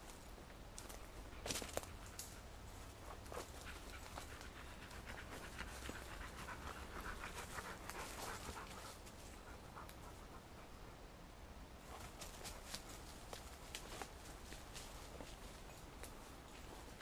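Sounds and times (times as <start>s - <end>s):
dog panting: 3.3s - 10.7s.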